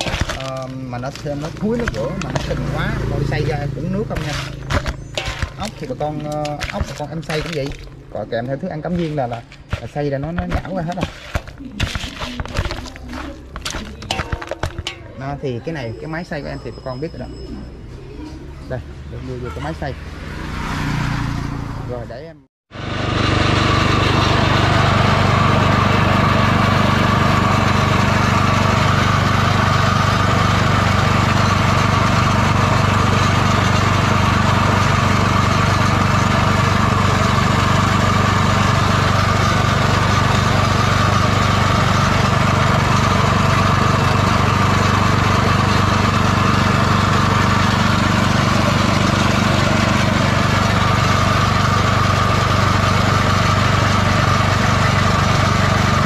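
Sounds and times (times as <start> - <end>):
meat grinder mincing: 0.0 - 15.0, 22.8 - 56.0
small petrol engine running: 0.0 - 56.0.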